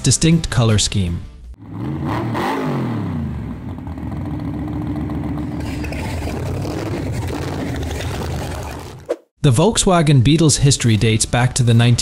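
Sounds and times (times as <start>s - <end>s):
engine revving and idling: 1.6s - 9.1s.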